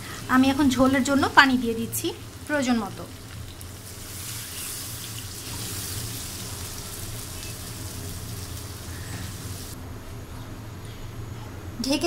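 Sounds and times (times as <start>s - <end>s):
water poured into hot pan: 3.1s - 8.8s.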